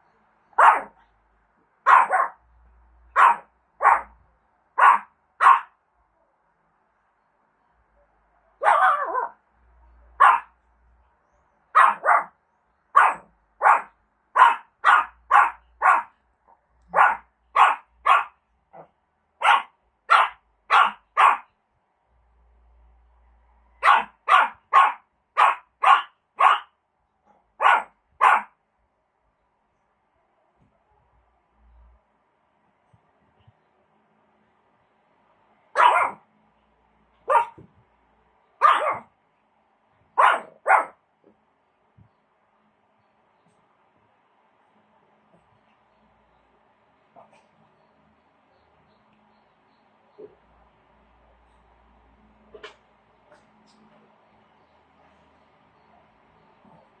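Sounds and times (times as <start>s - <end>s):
small dog barking: 0.5s - 1.1s, 1.8s - 2.4s, 3.1s - 4.2s, 4.8s - 5.8s, 8.6s - 9.4s, 10.1s - 10.6s, 11.7s - 21.6s, 23.8s - 28.6s, 35.7s - 36.3s, 37.2s - 37.6s, 38.6s - 39.2s, 40.2s - 41.0s.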